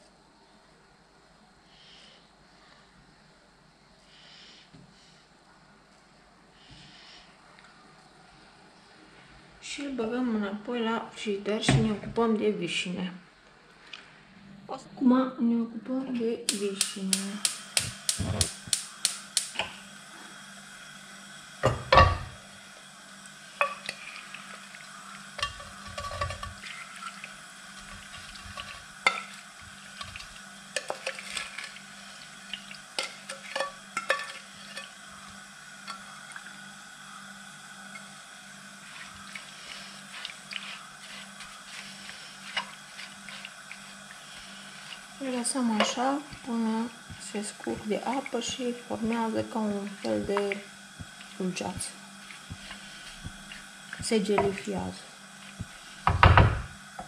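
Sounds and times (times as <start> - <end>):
steady low hum: 0.0 - 57.0
pot and utensils clinking: 25.4 - 27.2, 33.0 - 34.9.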